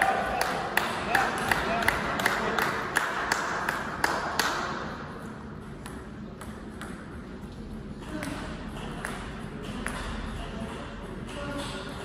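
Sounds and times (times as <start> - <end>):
table tennis ball bouncing: 5.7 - 7.3.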